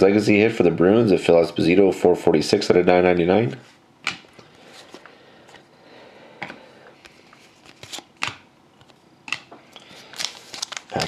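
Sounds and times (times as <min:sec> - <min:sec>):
cards sliding and rustling: 0:04.4 - 0:05.1, 0:07.0 - 0:09.0
cards clicking and snapping: 0:07.0 - 0:11.0.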